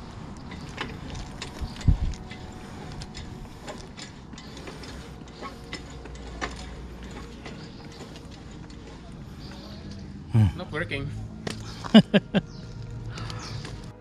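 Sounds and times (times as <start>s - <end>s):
hand pump clicking and clanking: 0.0s - 10.1s.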